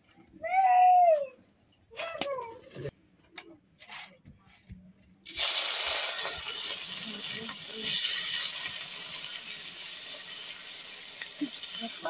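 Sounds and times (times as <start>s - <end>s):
hot oil sizzling in a pan: 5.3s - 12.0s.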